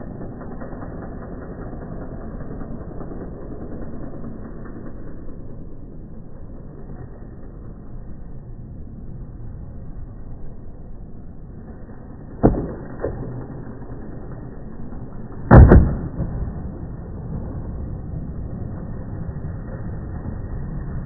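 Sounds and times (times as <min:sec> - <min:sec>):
skateboard wheels rolling on concrete: 0:00.0 - 0:21.0
skateboard landing clack: 0:12.3 - 0:13.8, 0:15.4 - 0:17.5.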